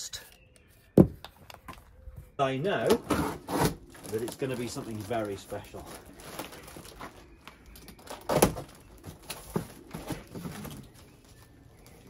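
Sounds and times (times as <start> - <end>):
cardboard box rustling and scraping: 3.0 - 4.8.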